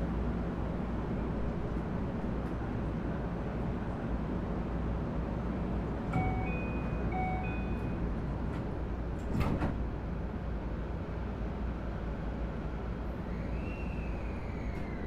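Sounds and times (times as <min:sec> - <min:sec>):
train car low hum: 0:00.0 - 0:15.0
two-note door chime: 0:06.2 - 0:08.0.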